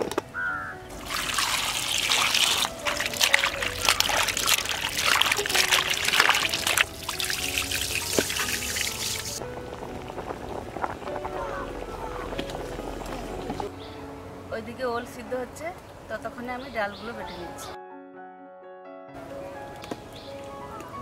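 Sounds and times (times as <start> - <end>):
water trickling and splashing: 0.8 - 13.9.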